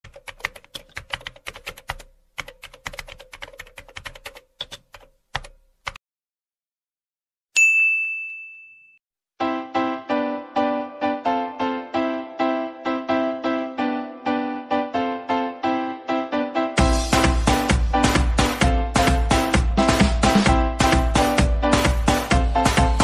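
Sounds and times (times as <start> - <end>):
keyboard typing clicks: 0.1 - 6.0
notification bell ding: 7.6 - 9.0
rhythmic keyboard music: 9.4 - 23.0.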